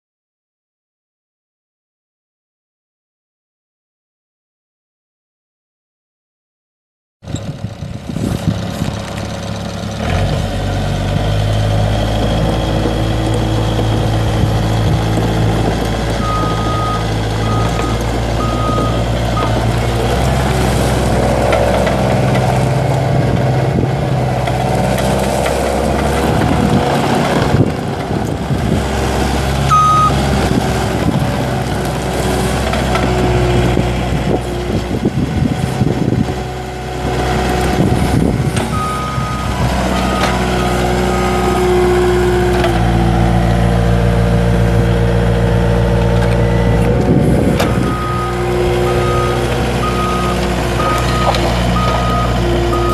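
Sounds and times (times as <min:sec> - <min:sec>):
tracks driving on gravel: 0:07.3 - 0:36.3, 0:36.9 - 0:52.9
diesel engine running: 0:07.3 - 0:52.9
backup alarm beeping: 0:29.7 - 0:30.2.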